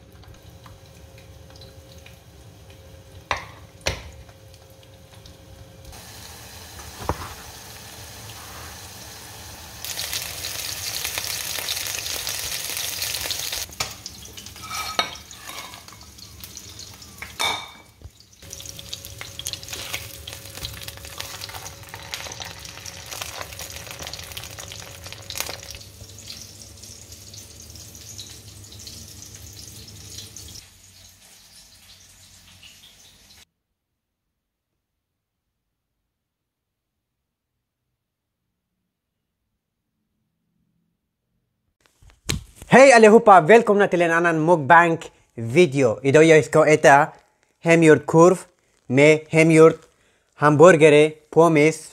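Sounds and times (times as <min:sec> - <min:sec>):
patty sizzling in a frying pan: 0:00.0 - 0:33.5, 0:48.0 - 0:50.4.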